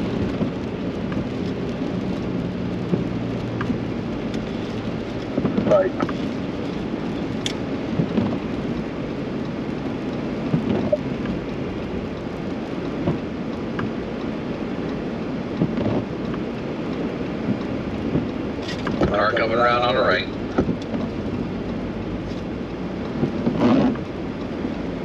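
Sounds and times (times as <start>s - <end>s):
rain tapping on windshield: 0.0s - 25.0s
tyre rumble on wet road: 0.0s - 25.0s.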